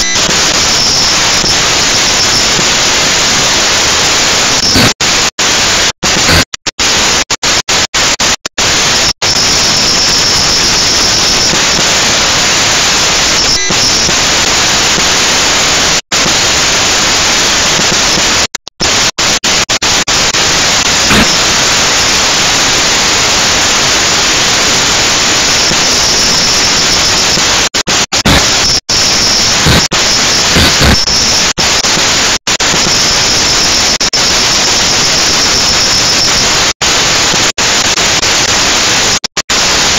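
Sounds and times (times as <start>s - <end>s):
faint high whine: 8.1s - 39.2s.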